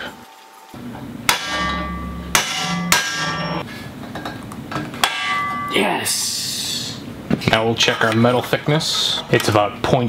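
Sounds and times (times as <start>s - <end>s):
ringing metal-on-metal blows: 1.3s - 3.6s, 5.0s - 6.0s.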